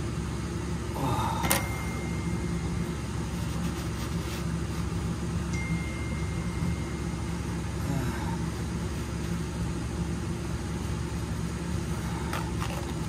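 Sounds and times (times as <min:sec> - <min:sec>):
low machine hum: 0:00.0 - 0:13.0
thin high tone: 0:01.4 - 0:03.7, 0:05.4 - 0:08.2.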